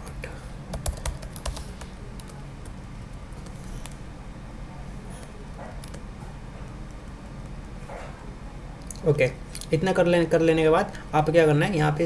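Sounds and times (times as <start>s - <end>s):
low background hum: 0.0s - 12.0s
computer keyboard clicks: 0.7s - 2.8s.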